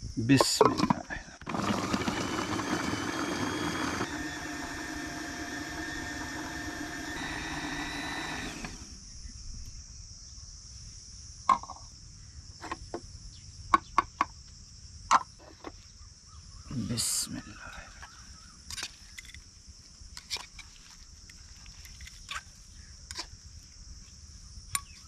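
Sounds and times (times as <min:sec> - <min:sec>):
food processor running: 0:01.4 - 0:09.0.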